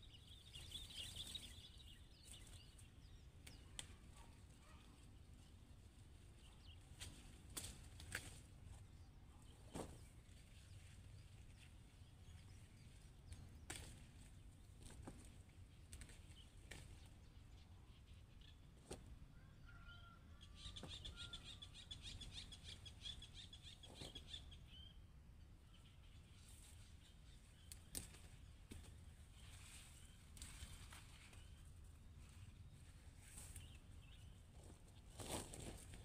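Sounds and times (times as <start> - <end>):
bird chirps: 0.0 - 4.8, 19.4 - 25.0.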